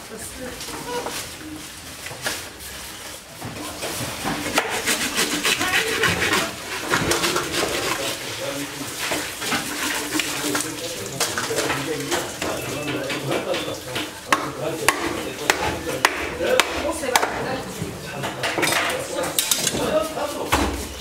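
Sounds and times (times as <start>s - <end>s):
knife cutting through fish: 4.4s - 8.2s.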